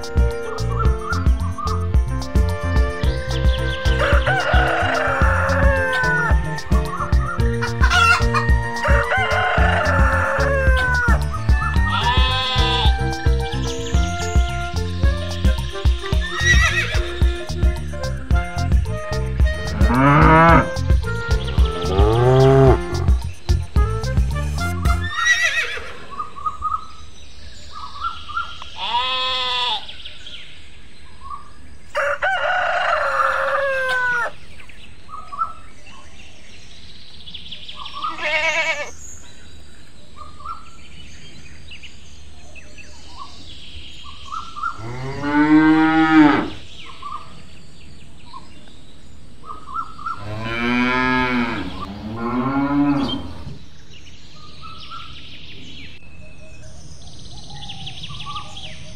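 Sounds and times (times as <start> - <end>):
small birds chirping: 0.0 - 32.0, 33.8 - 58.9
cow mooing: 19.7 - 20.7, 21.6 - 23.0, 44.8 - 46.6, 50.2 - 53.6.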